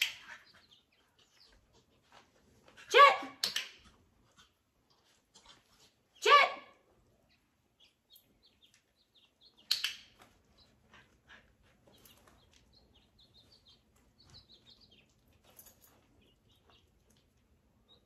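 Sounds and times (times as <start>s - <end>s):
puppy paws ticking on wood floor: 8.1s - 17.6s.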